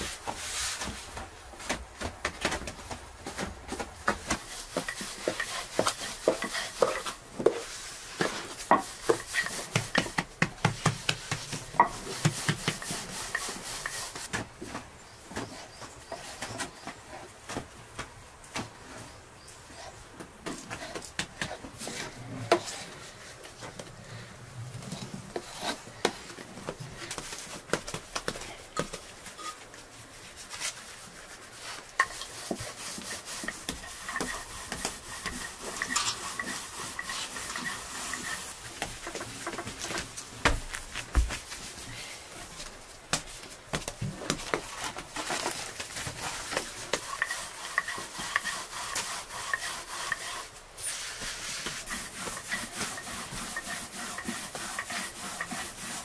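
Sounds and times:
dough patting on wooden board: 8.2s - 13.5s.

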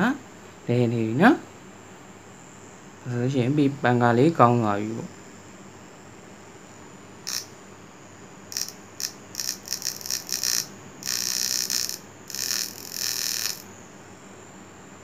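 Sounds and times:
small motor with propeller whirring: 8.5s - 13.6s.

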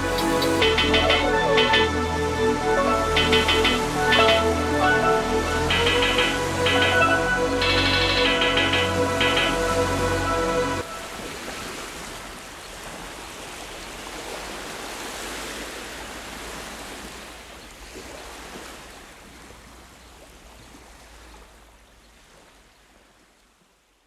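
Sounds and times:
music: 0.0s - 11.0s
rushing noise: 0.0s - 11.2s.

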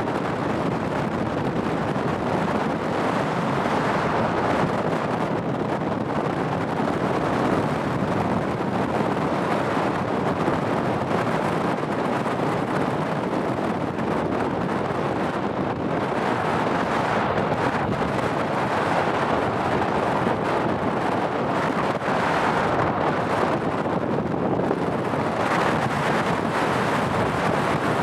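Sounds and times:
jet airliner engines rushing: 0.0s - 28.0s.

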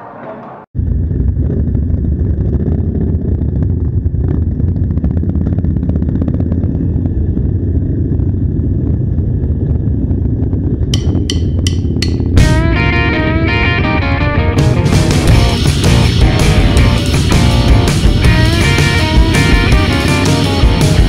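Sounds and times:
motorcycle engines running: 10.9s - 21.0s
guitar music: 12.2s - 21.0s.

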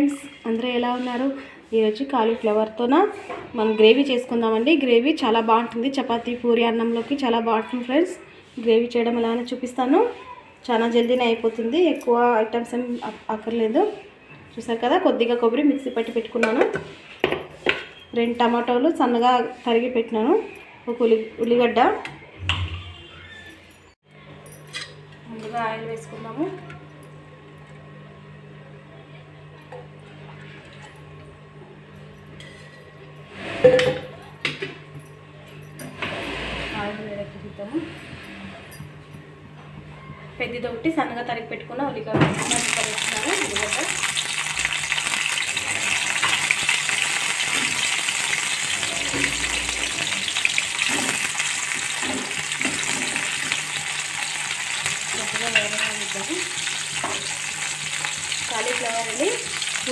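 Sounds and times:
kitchenware clattering: 33.6s - 36.0s, 45.2s - 54.0s, 54.6s - 58.0s
onions sizzling in hot oil: 42.3s - 59.9s
onions stirred in pan: 42.6s - 59.9s.

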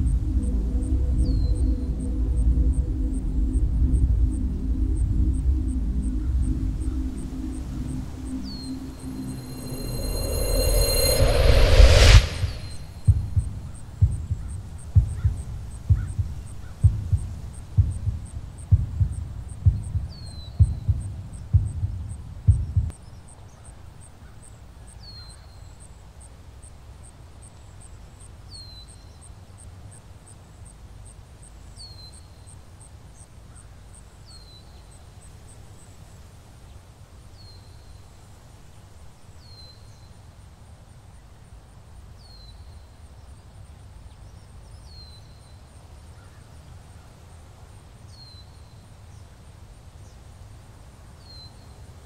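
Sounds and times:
thin steady tone: 0.0s - 13.6s
low wind-like rumble: 0.0s - 22.9s.

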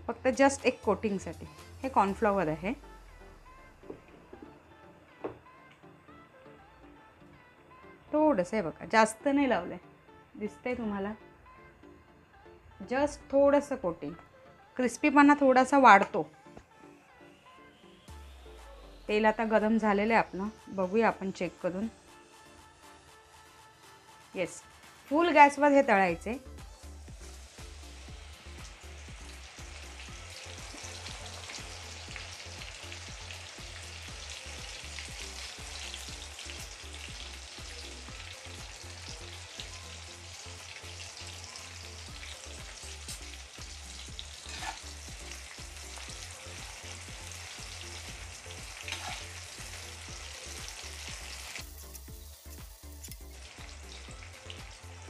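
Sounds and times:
onions sizzling in hot oil: 27.0s - 55.0s.

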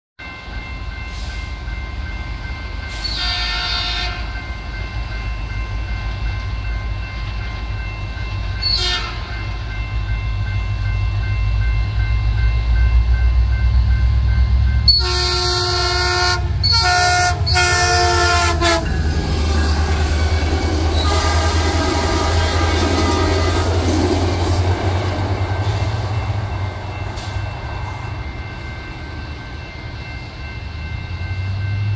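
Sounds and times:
crossing warning bell ringing: 0.2s - 31.9s
train coaches rolling past: 0.2s - 31.9s
train horn blasts: 3.0s - 4.4s, 8.6s - 9.4s, 14.9s - 24.7s.

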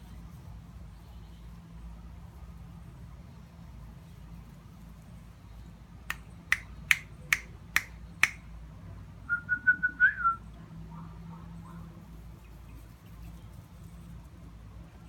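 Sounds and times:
finger snaps: 6.1s - 8.4s
short whistle: 9.3s - 10.4s.

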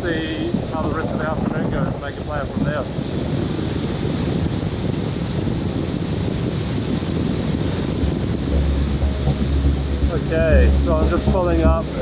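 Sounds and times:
wind rushing over microphone: 0.0s - 12.0s
motorcycle engine drone: 6.7s - 12.0s.

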